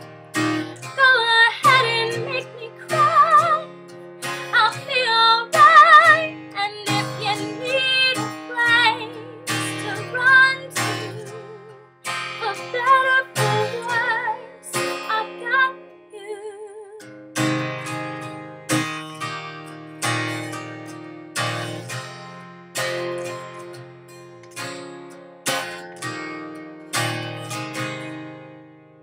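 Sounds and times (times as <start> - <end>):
acoustic guitar strummed chords: 0.0 - 29.0
woman singing with vibrato: 0.6 - 3.8, 4.4 - 17.1.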